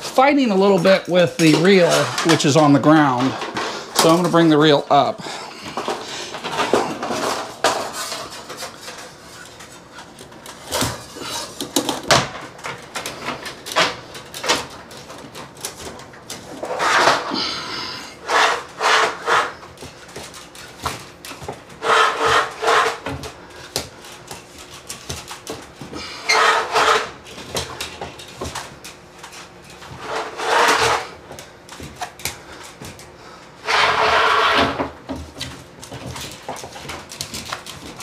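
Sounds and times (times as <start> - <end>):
wire scraping and rubbing: 16.3 - 17.5, 18.2 - 19.7, 21.7 - 23.2, 26.0 - 27.4, 29.3 - 31.2, 33.6 - 35.0.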